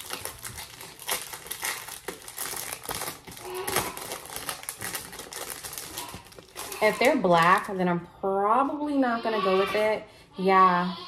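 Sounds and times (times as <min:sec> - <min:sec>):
plastic packaging crinkling: 0:00.0 - 0:07.8.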